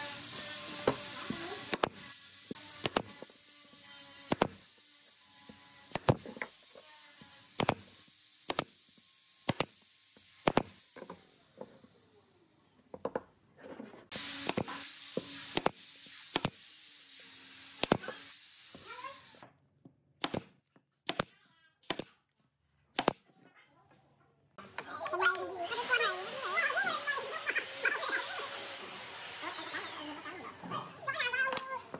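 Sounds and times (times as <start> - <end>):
nail gun shots: 2.8 - 3.2, 9.5 - 9.8, 10.4 - 10.8, 14.4 - 14.8, 20.2 - 22.2, 23.0 - 23.2.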